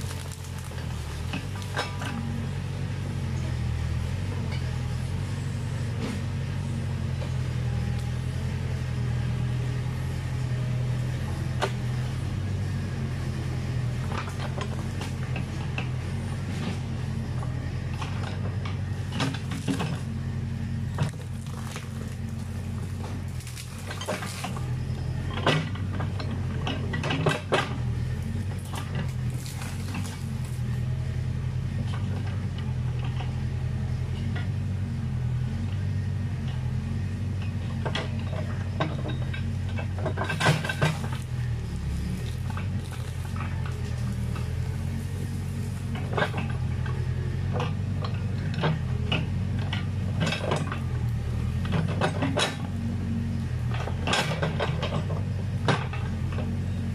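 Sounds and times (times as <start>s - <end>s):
branches cracking and breaking: 0.0s - 2.0s, 21.0s - 24.8s, 28.6s - 30.7s, 40.6s - 45.9s
diesel engine running: 0.0s - 56.9s.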